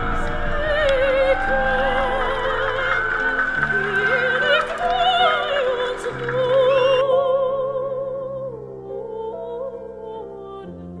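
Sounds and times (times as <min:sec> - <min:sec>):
melody with wide vibrato: 0:00.0 - 0:08.2.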